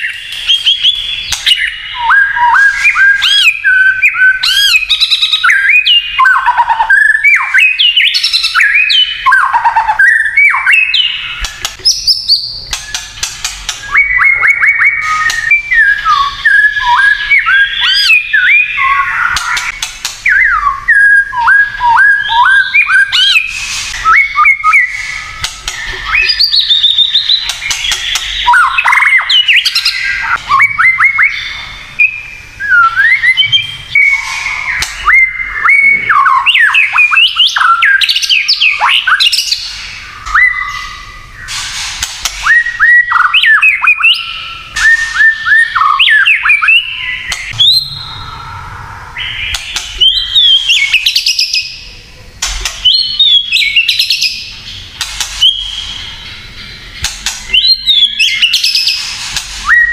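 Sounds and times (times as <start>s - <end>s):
songbird whistling phrases: 0.0s - 41.6s, 42.4s - 51.9s, 52.7s - 54.6s, 55.4s - 56.8s, 57.5s - 59.0s, 59.6s - 59.9s
harsh crackling bird notes: 0.0s - 59.9s.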